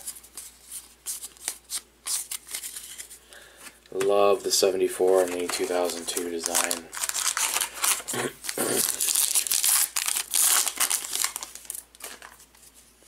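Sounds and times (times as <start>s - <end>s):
card pack wrapper tearing: 5.2s - 12.4s.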